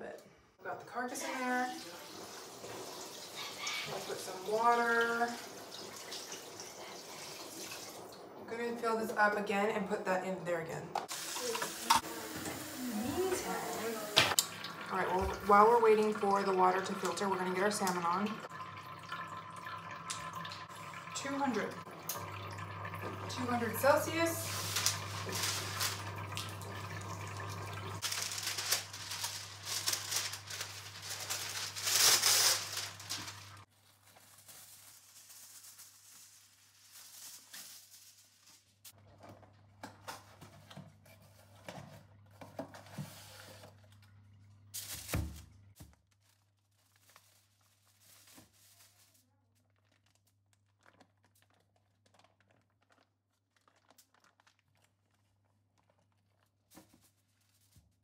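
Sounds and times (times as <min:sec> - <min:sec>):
crinkling and rustling: 0:24.4 - 0:26.6, 0:28.0 - 0:44.1, 0:44.7 - 0:58.0.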